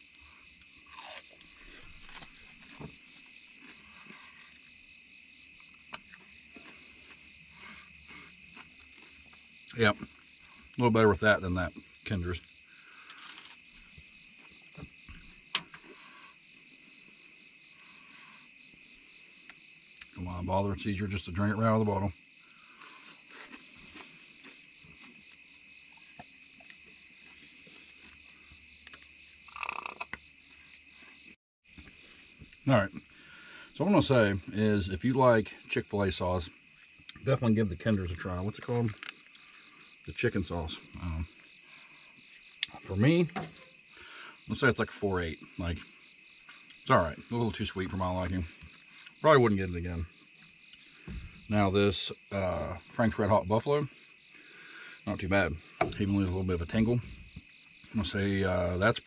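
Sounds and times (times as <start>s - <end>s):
crickets trilling: 0.0s - 59.0s
night insects chorus: 0.0s - 59.0s
faint chewing: 0.1s - 4.8s, 22.6s - 31.2s.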